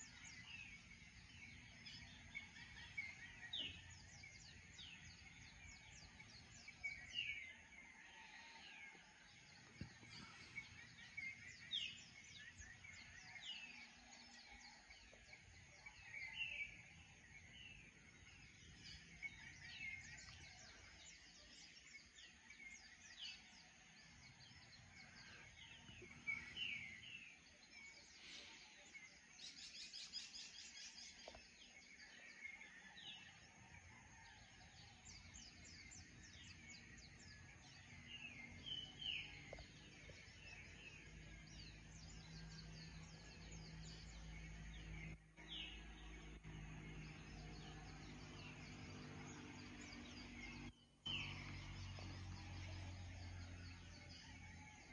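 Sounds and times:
faint birds chirping: 0.0 - 54.9.

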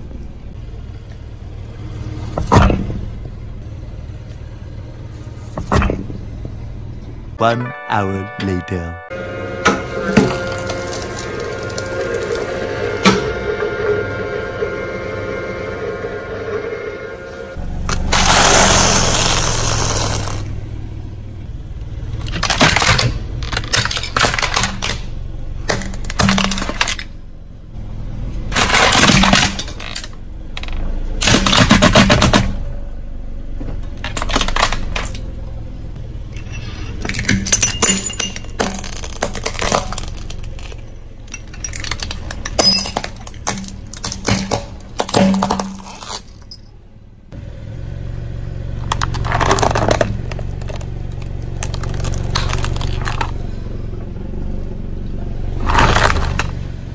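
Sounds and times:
car tyre crushing brittle objects: 9.7 - 13.3, 17.5 - 20.9, 21.5 - 32.8, 33.4 - 46.8, 48.6 - 53.9, 54.6 - 56.9.

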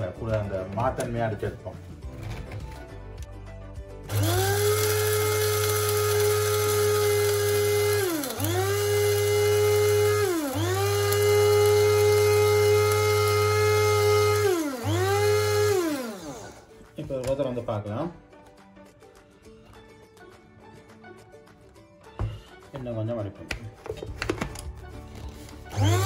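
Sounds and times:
electric spice grinder whirring: 4.1 - 16.7, 25.2 - 26.0.

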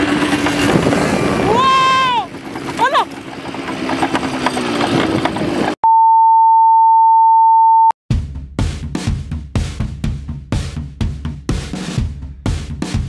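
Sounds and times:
quad bike engine: 0.0 - 5.8
high electronic beep: 5.8 - 8.0
music with heavy drum beat: 8.1 - 13.0.

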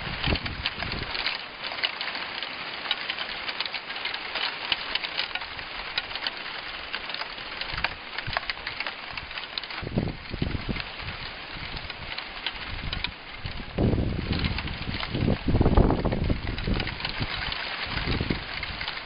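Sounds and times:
wind rumble on microphone: 0.0 - 1.3, 6.8 - 19.0.

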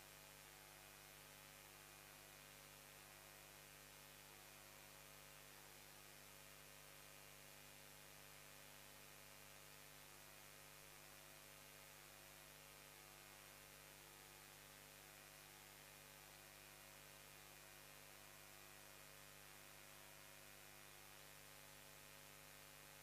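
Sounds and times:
faint electrical hum: 0.0 - 23.0.

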